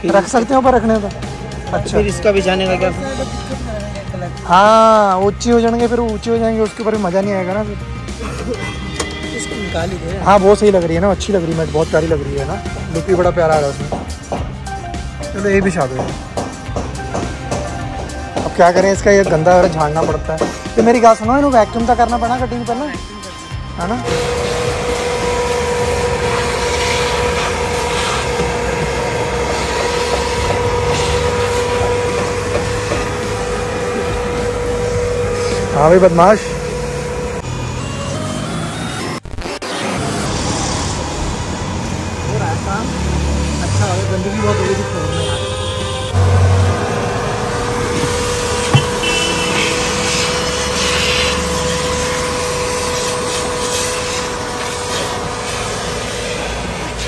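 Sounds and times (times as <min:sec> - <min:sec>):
vacuum cleaner motor hum: 0:46.2 - 0:57.0
suction hiss: 0:48.1 - 0:57.0.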